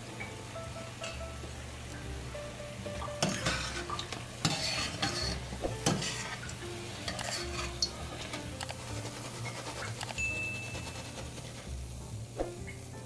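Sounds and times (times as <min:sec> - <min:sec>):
food sizzling in hot oil: 0:00.0 - 0:13.0
strainer scraping metal pan: 0:03.2 - 0:12.6.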